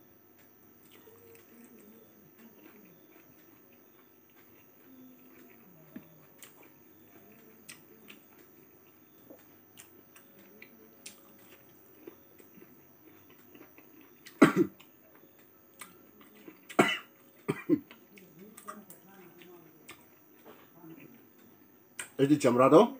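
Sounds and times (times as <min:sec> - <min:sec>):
person chewing: 0:00.8 - 0:22.1
person coughing: 0:14.4 - 0:14.8, 0:16.7 - 0:17.8.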